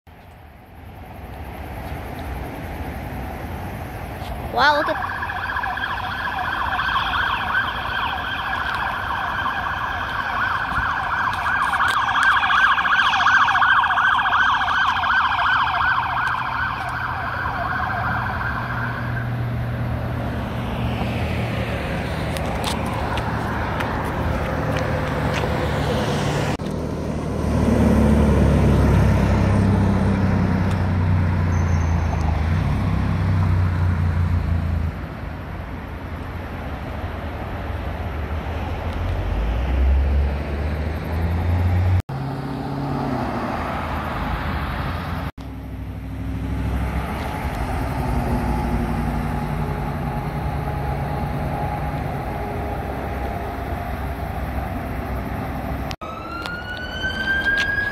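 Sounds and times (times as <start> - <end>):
traffic noise: 0.0 - 57.9
heavy low engine drone: 45.2 - 56.8.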